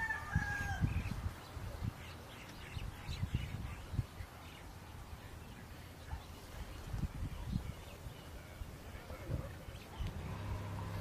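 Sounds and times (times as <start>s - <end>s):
rooster crowing: 0.0s - 0.9s.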